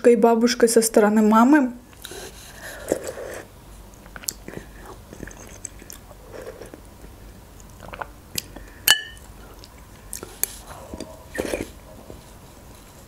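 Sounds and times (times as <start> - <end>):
soft chewing and mouth sounds: 1.9 - 13.0
spoon clinking against glass bowl: 8.9 - 9.2.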